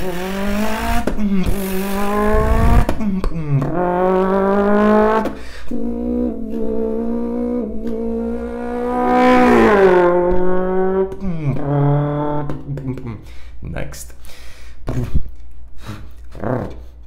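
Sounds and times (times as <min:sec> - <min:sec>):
man imitating a car engine: 0:00.0 - 0:14.1, 0:16.3 - 0:17.0.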